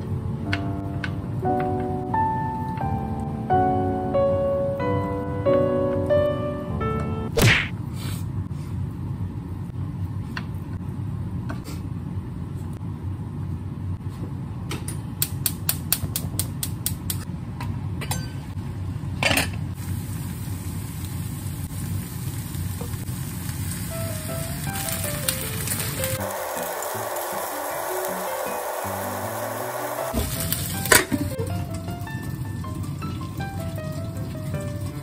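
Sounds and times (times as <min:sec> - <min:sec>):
sharp knock: 0:07.4 - 0:07.7.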